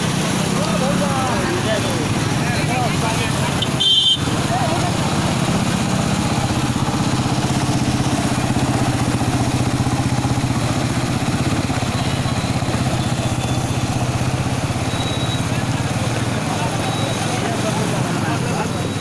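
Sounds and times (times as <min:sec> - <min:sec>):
motorcycle engine running: 0:00.0 - 0:19.0
water washing: 0:00.0 - 0:19.0.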